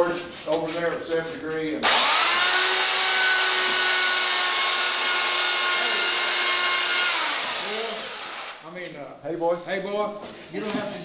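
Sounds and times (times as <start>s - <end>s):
power tool whining on plywood: 1.8s - 8.6s.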